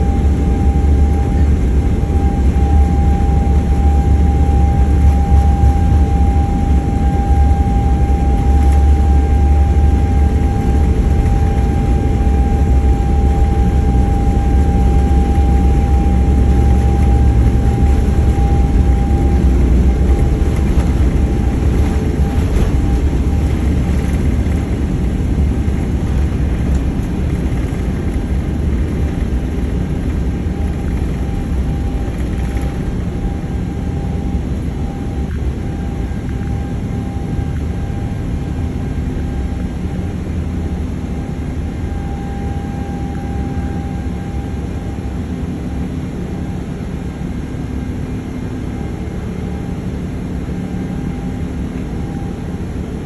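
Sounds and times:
thin whining tone: 0:00.0 - 0:24.6
jet engine low rumble: 0:00.0 - 0:53.0.

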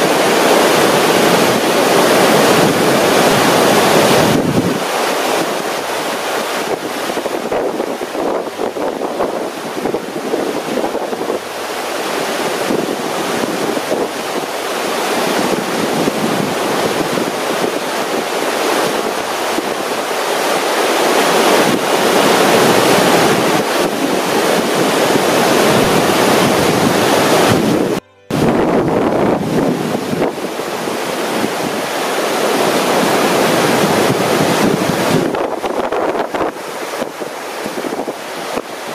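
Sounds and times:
whitewater rushing: 0:00.0 - 0:38.9
wind buffeting microphone: 0:00.0 - 0:38.9.

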